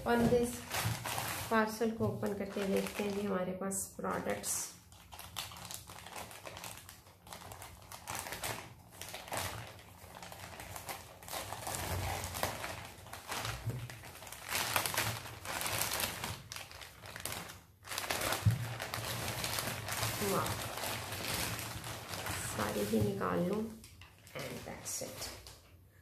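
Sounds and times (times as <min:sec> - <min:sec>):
packaging rustling and crinkling: 0:00.0 - 0:03.4, 0:04.1 - 0:25.7.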